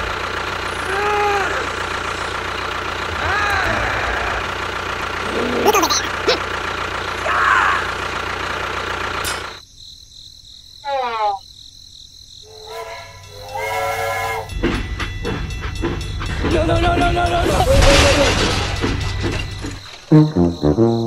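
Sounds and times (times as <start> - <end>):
engine drone: 0.0 - 9.6
horn-like whistle: 12.5 - 14.6.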